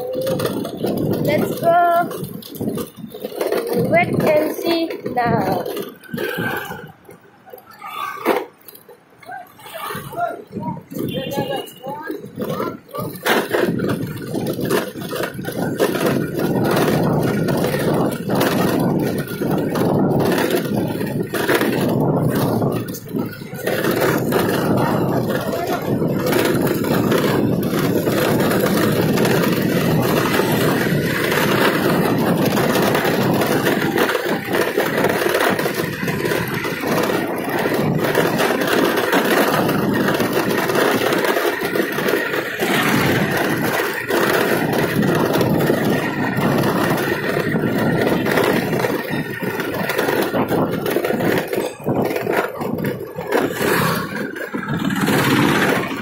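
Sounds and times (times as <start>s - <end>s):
motorbike engine: 0.0s - 9.0s, 9.8s - 56.0s
wind rush: 13.7s - 56.0s.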